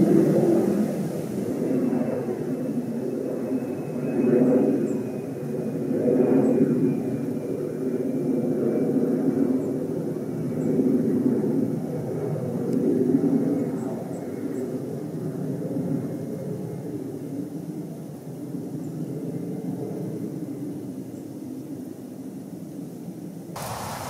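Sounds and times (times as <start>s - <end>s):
distant airplane rumble: 0.0s - 7.8s, 23.6s - 24.0s.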